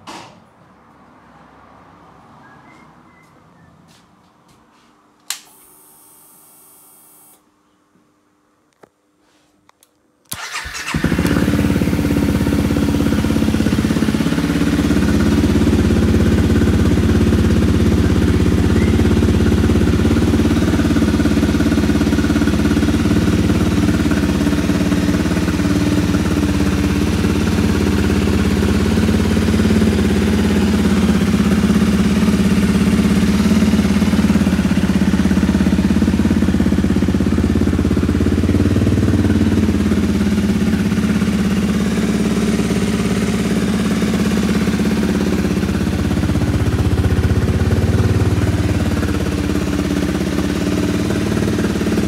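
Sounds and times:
motorcycle engine idling: 0:10.4 - 0:52.0.

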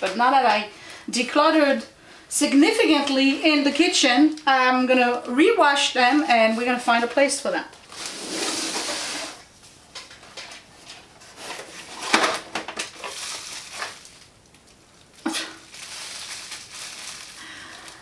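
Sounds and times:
bubble wrap crinkling: 0:07.8 - 0:09.4, 0:12.8 - 0:18.0.

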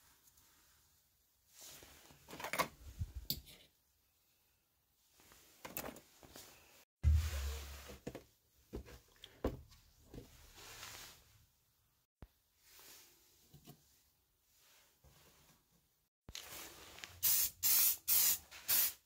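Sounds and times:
low thump: 0:07.0 - 0:07.7.

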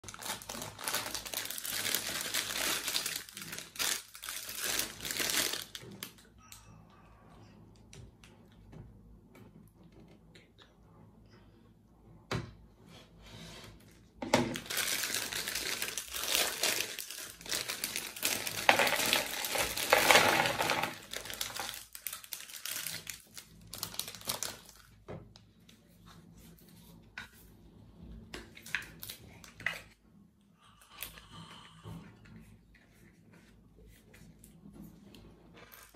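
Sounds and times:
plastic bag crackling: 0:00.0 - 0:06.2, 0:14.5 - 0:25.0.

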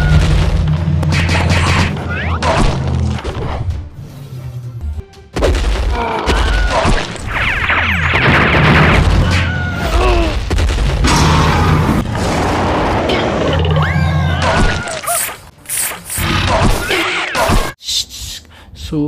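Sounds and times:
booms and crashes: 0:00.0 - 0:03.0, 0:05.4 - 0:13.5.

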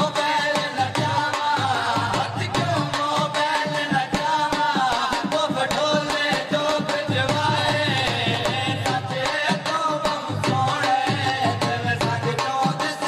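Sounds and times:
dhol drum beating: 0:00.0 - 0:13.0.

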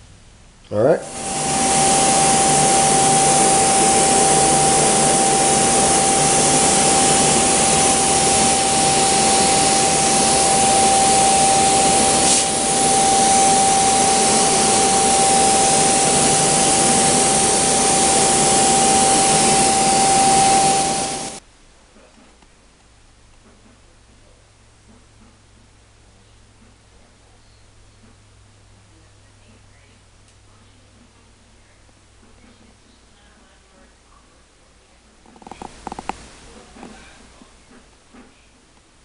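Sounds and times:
electric blower motor running: 0:01.0 - 0:21.4.

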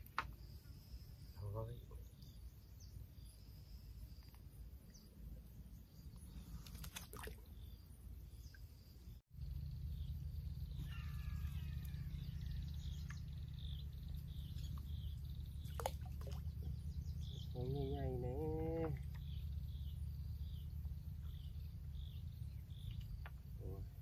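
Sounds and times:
steady low rumble: 0:09.0 - 0:24.0
birds chirping and calling: 0:09.5 - 0:24.0.

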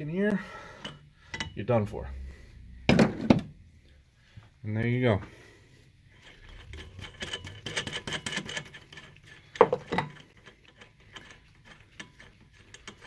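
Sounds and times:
metal clanks: 0:00.8 - 0:01.6, 0:06.2 - 0:13.0.

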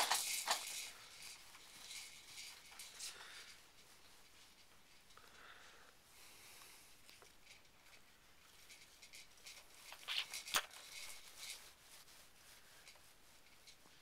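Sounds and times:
plastic toys clicking and rattling: 0:00.0 - 0:03.5, 0:08.7 - 0:11.6.

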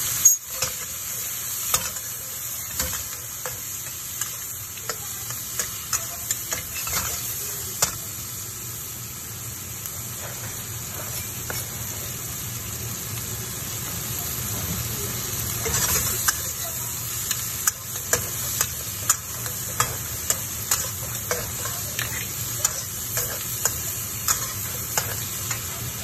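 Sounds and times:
food sizzling in a hot wok: 0:00.0 - 0:26.0
metal spatula clanking on wok: 0:17.3 - 0:26.0.

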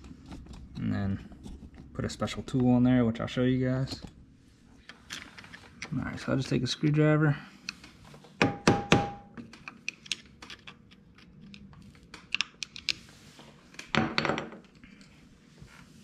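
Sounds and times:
sharp metal knocks: 0:08.4 - 0:09.3.

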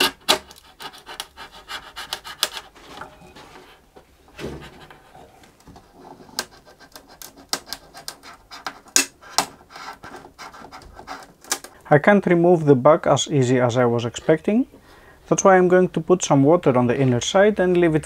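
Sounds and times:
glue joint clicking and cracking: 0:00.0 - 0:01.4, 0:02.0 - 0:02.7, 0:06.3 - 0:11.9
knife prying at glue joint: 0:00.0 - 0:01.4, 0:06.4 - 0:09.6.

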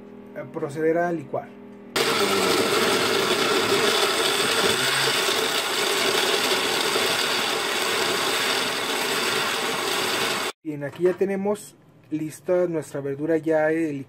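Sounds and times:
blender running: 0:02.0 - 0:10.6.

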